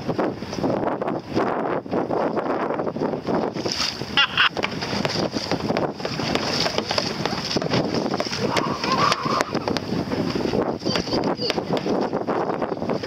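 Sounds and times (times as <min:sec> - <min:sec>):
wind buffeting microphone: 0:00.0 - 0:13.0
waves splashing: 0:03.2 - 0:13.0.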